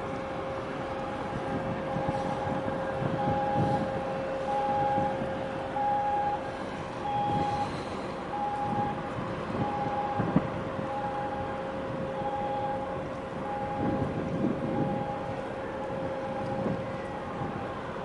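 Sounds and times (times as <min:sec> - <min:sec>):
electronic warning beeper: 0:07.0 - 0:07.7, 0:12.2 - 0:14.1.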